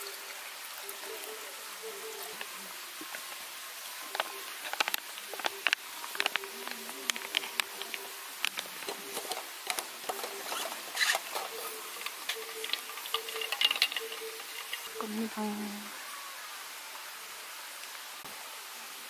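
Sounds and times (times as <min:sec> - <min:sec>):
ice cubes clicking: 0:07.2 - 0:15.0.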